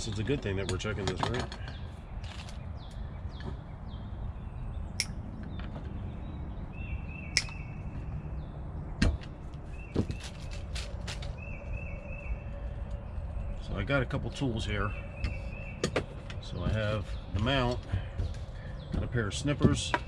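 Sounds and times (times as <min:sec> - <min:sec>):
bird chirping: 0:00.0 - 0:20.0
steady low rumble: 0:00.0 - 0:20.0.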